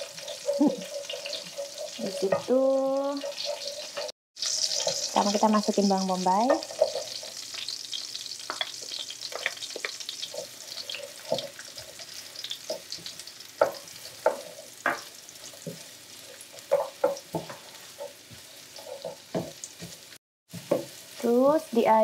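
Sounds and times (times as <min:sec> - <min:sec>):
onions sizzling in a frying pan: 0:00.0 - 0:22.0
wooden spatula knocking on pan: 0:13.6 - 0:15.1, 0:20.6 - 0:21.0.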